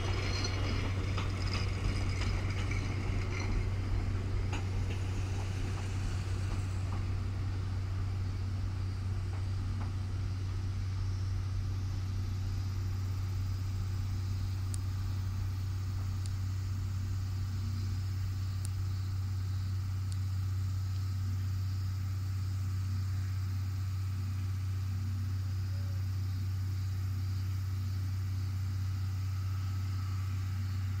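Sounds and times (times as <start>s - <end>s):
electric trains humming: 0.0s - 31.0s
faint ticks: 13.6s - 21.5s.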